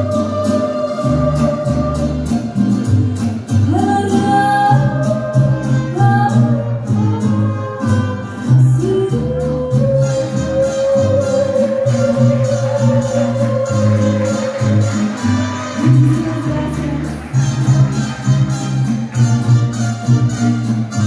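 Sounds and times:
woman singing: 0.0 - 2.5, 3.6 - 15.0, 15.8 - 17.4
band accompaniment: 0.0 - 21.0.

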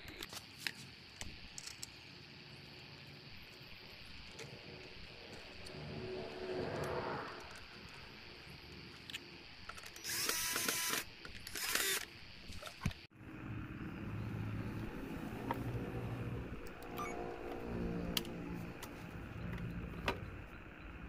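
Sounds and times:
cordless drill driving a screw: 10.0 - 12.1.

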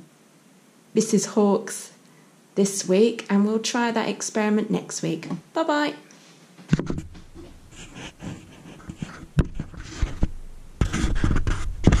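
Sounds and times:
rustling: 6.1 - 12.0
soft knocks: 6.6 - 7.9.

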